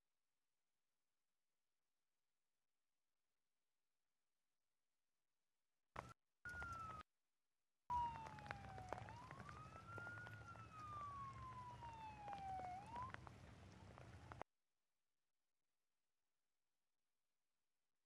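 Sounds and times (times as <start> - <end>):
emergency vehicle siren wailing: 6.5 - 7.1, 7.9 - 14.4.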